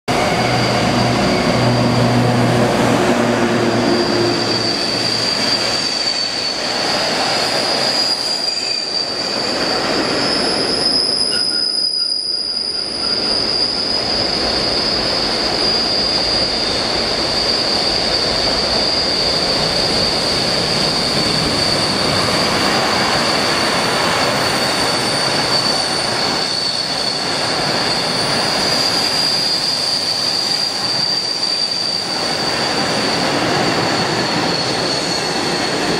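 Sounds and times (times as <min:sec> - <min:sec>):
high-pitched wheel squeal: 0:00.1 - 0:35.9
train wheels rumbling on rail: 0:00.1 - 0:35.9.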